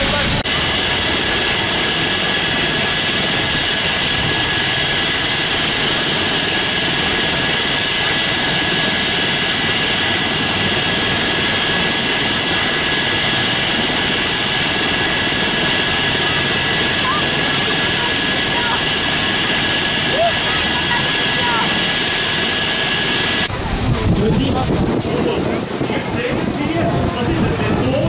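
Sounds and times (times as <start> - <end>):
helicopter rotor rushing: 0.0 - 28.0
helicopter turbine whine: 0.0 - 28.0.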